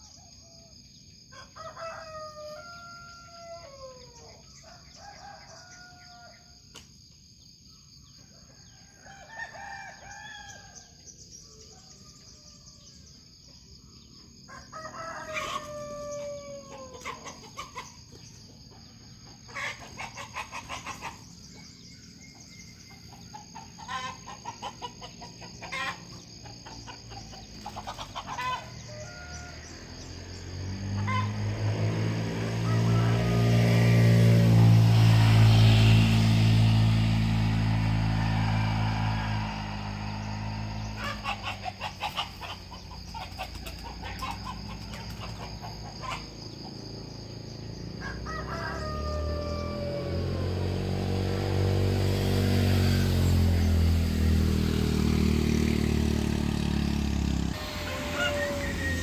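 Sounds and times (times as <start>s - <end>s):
high insect drone: 0.0s - 59.0s
rooster crowing: 0.1s - 6.7s, 8.1s - 13.3s, 13.9s - 18.0s, 23.5s - 31.4s, 32.0s - 35.4s, 36.9s - 46.6s, 47.7s - 51.3s, 57.0s - 59.0s
chickens clucking: 16.6s - 21.4s, 22.8s - 28.8s, 40.8s - 46.9s
vehicle engine passing: 18.6s - 59.0s.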